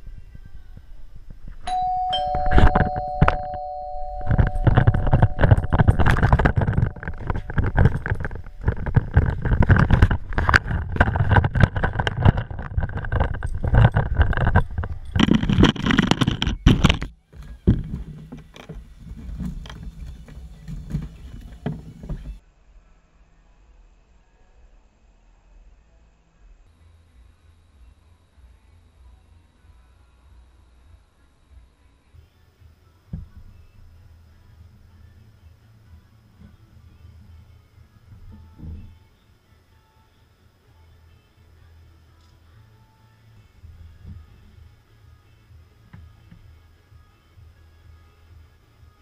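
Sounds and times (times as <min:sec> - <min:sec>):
two-tone doorbell ringing: 0:01.7 - 0:07.7.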